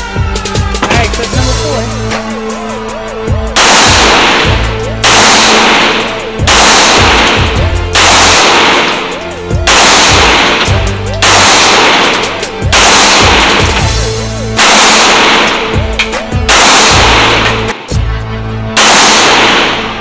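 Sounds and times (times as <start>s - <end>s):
background music: 0.0s - 20.0s
pistol shots echoing indoors: 3.6s - 13.8s, 14.5s - 15.9s, 16.5s - 17.8s, 18.8s - 20.0s.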